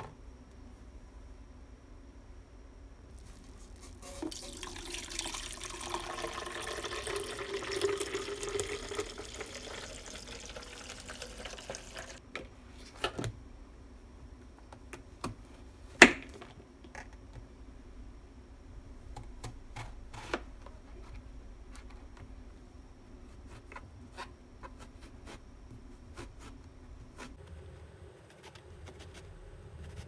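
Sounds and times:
liquid pouring into plastic container: 4.2 - 12.2.

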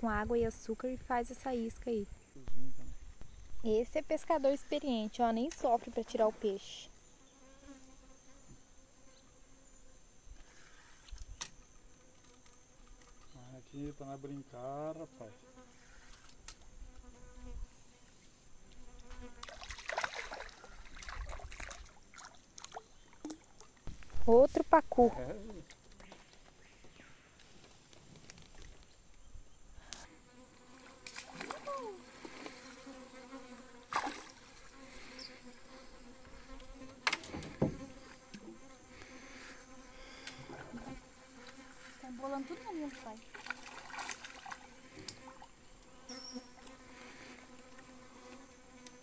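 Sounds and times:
buzzing of flying insects: 0.6 - 49.0
fish splashing in water: 19.4 - 23.7, 31.0 - 32.6, 33.9 - 34.5, 43.2 - 44.8.

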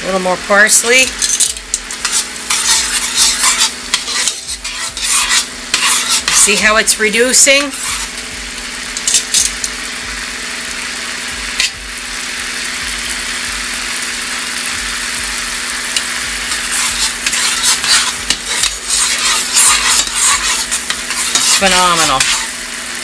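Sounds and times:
sauce sizzling in a frying pan: 0.0 - 23.0
metal spoon scraping a pan: 0.7 - 8.3, 8.9 - 9.8, 15.9 - 22.6.

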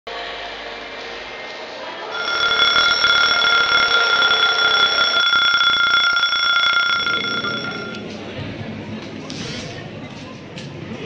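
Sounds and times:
electric bell ringing: 2.2 - 8.1.

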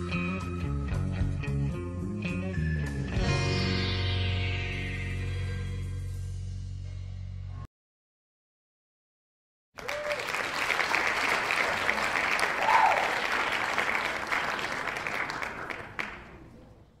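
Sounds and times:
person cheering: 9.8 - 10.4, 11.9 - 13.5
crowd clapping: 9.8 - 16.6.

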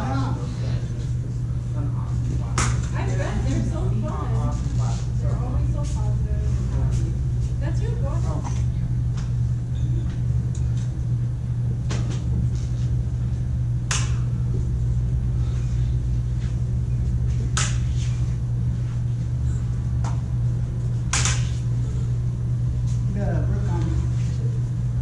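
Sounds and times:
lightsaber clash cracks: 13.9 - 14.2, 21.1 - 21.5.

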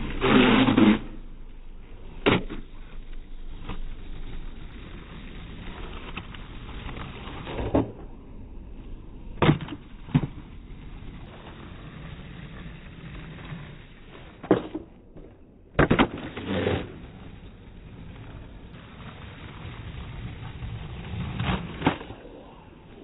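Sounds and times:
skateboard wheels rolling on asphalt: 0.0 - 23.0
skateboard wooden clacks: 2.0 - 8.2, 9.4 - 23.0.

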